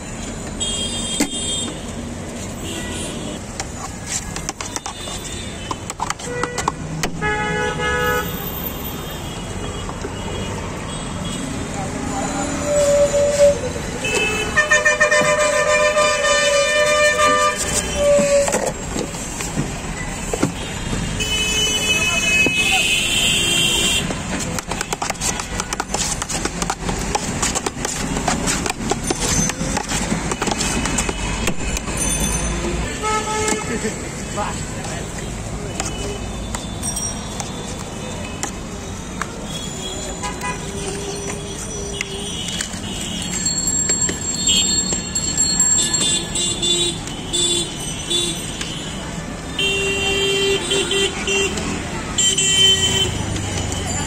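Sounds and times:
street traffic noise: 0:00.0 - 0:54.0
vehicle horn: 0:14.0 - 0:18.6, 0:49.5 - 0:51.6.

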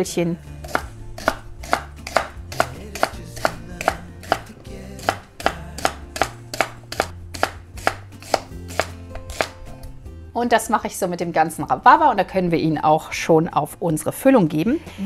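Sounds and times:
knife chopping on wooden board: 0:00.6 - 0:09.6.

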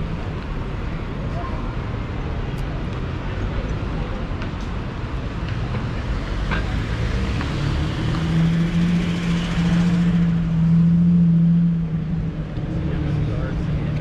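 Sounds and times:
street traffic noise: 0:00.0 - 0:14.0.

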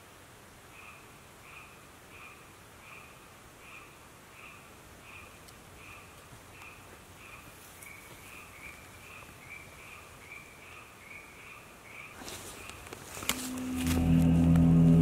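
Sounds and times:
loud rustling: 0:12.2 - 0:15.0.

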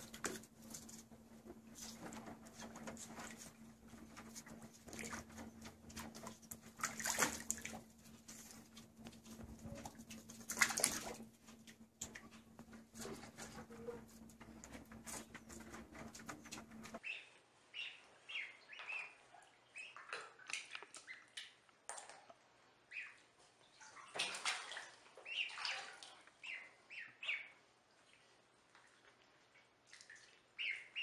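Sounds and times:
water sloshing in bathtub: 0:00.0 - 0:17.0, 0:23.7 - 0:26.5, 0:27.8 - 0:30.6
low steady hum: 0:00.0 - 0:17.6
dense splashing: 0:04.8 - 0:08.5, 0:09.8 - 0:11.3
ducklings peeping: 0:13.1 - 0:21.4, 0:22.9 - 0:23.2, 0:25.2 - 0:27.6, 0:30.2 - 0:31.0.

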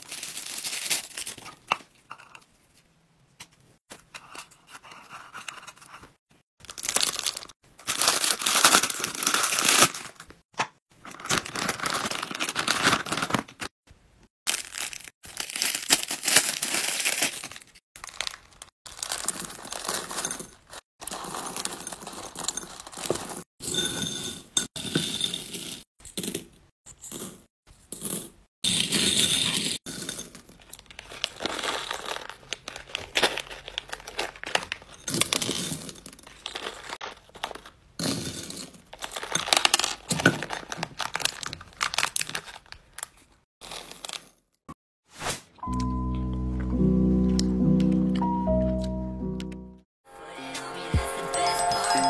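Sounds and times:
plastic bags crinkling and tearing: 0:00.0 - 0:01.7, 0:06.6 - 0:10.4, 0:11.0 - 0:13.7, 0:14.5 - 0:20.3, 0:30.9 - 0:35.6, 0:38.9 - 0:43.3.

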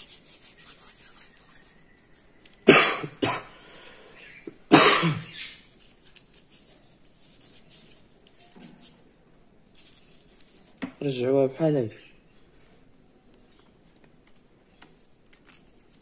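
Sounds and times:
person coughing: 0:02.7 - 0:03.6, 0:04.7 - 0:05.3.

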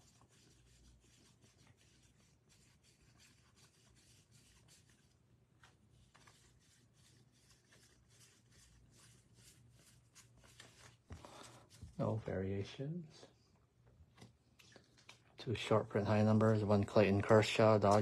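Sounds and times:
cards flicking and rubbing: 0:00.0 - 0:12.0, 0:16.4 - 0:18.0.

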